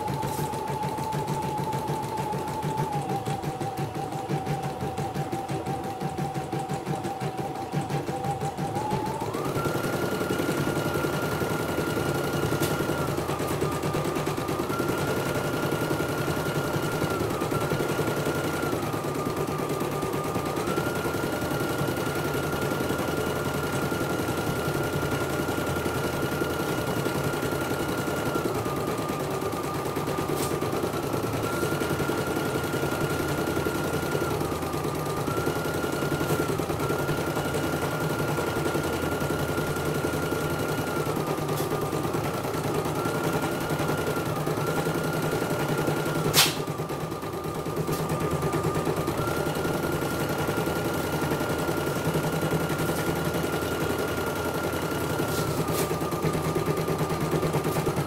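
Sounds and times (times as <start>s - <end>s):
sharp click: 46.3s - 46.6s.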